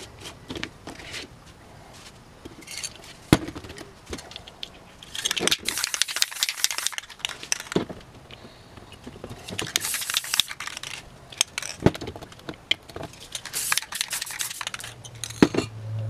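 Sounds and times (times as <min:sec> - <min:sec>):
metal cans clicking and knocking: 0:02.6 - 0:08.0, 0:09.1 - 0:15.7
spray paint can hissing: 0:05.2 - 0:07.8, 0:09.5 - 0:11.0, 0:13.2 - 0:15.0.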